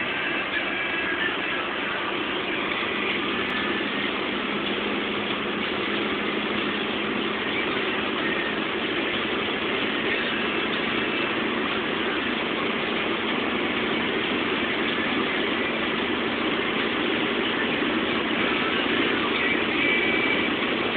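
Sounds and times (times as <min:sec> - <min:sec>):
low engine hum: 0:00.0 - 0:20.9.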